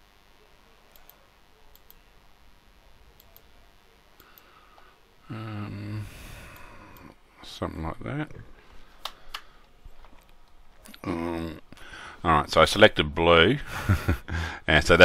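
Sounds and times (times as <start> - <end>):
computer mouse clicks: 0.9 - 2.0, 3.2 - 3.5, 9.0 - 11.0
person breathing: 4.2 - 7.2, 8.5 - 9.8, 11.7 - 12.2, 14.3 - 14.7
person humming: 5.2 - 7.0, 10.9 - 11.6.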